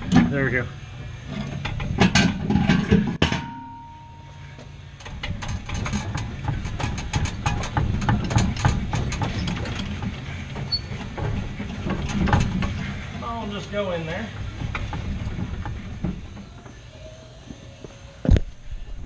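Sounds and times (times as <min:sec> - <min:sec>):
metallic clicks and knocks: 0:05.0 - 0:12.9.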